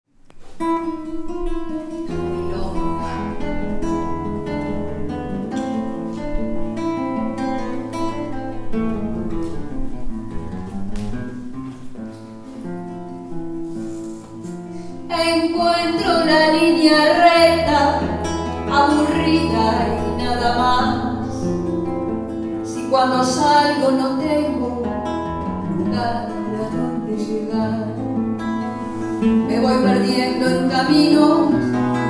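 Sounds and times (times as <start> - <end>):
nylon-string guitar playing: 0.3 - 32.0
woman singing: 15.1 - 21.5, 22.6 - 28.0, 29.2 - 32.0.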